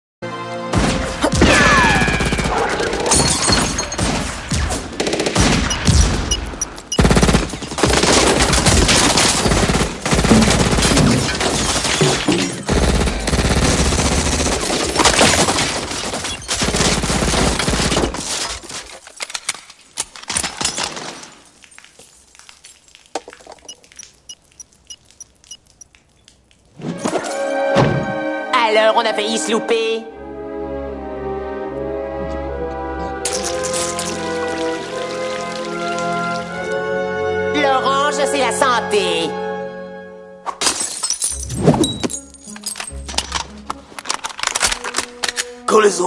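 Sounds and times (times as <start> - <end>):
heavy rapid gunfire: 4.1 - 6.3, 7.0 - 12.1, 12.7 - 16.0.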